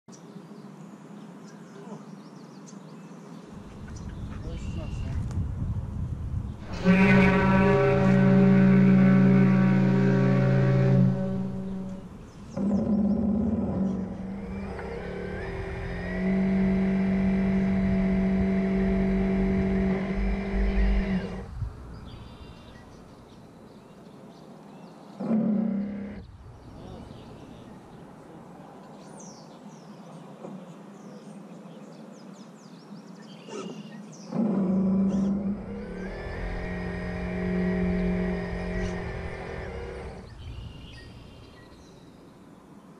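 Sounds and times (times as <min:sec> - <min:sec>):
water noise: 0:03.4 - 0:23.3
model ship motor whining: 0:06.6 - 0:21.5, 0:25.2 - 0:26.3, 0:34.3 - 0:41.5.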